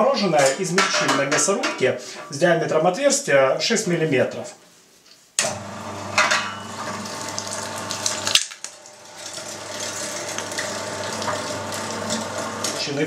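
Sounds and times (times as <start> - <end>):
meat grinder motor hum: 5.4 - 13.0
crackles from meat: 7.3 - 11.9.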